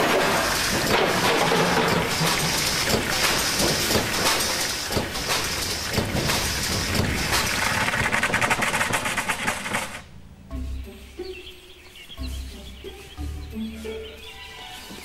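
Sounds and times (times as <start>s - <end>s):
loose metal parts clattering on road: 0.0s - 10.1s.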